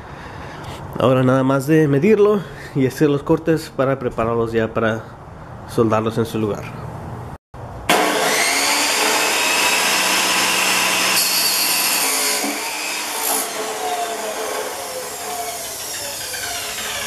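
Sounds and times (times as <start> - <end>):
chop saw cutting steel tubing: 7.9 - 17.0.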